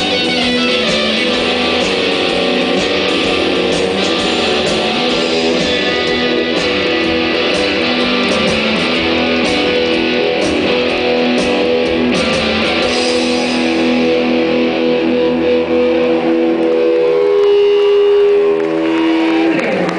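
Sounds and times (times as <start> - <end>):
drums and cymbals: 0.0 - 14.5
bass guitar: 0.0 - 19.9
distorted electric guitars: 0.0 - 19.9.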